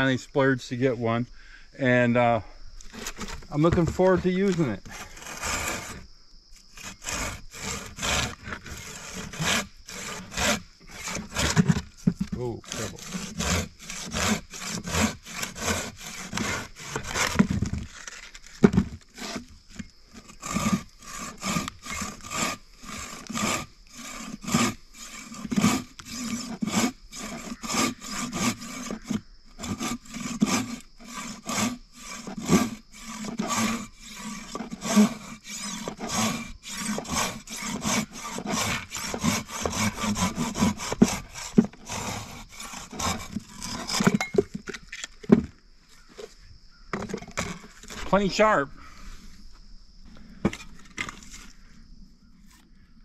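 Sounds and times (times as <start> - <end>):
pruning saw cutting branch: 2.8 - 6.0, 6.7 - 44.4.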